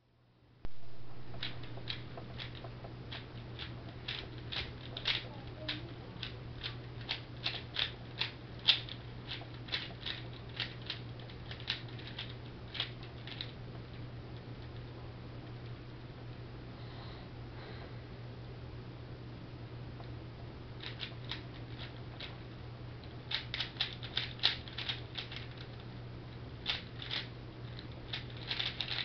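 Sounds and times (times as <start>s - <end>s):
low hum: 0.0s - 29.0s
puzzle cube plastic clicks: 1.3s - 13.6s, 20.8s - 22.3s, 23.3s - 25.9s, 26.6s - 29.0s.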